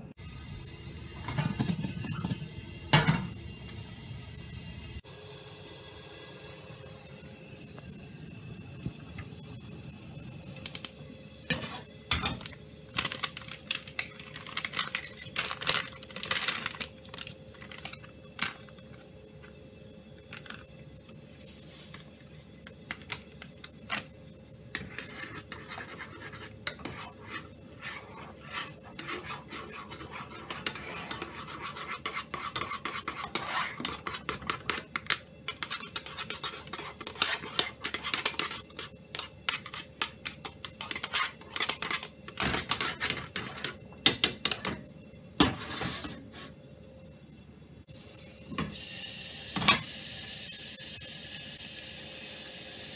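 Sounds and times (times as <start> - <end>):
utensil scraping in a saucepan: 1.2 - 3.3, 11.4 - 19.6, 20.2 - 44.8, 45.4 - 46.6.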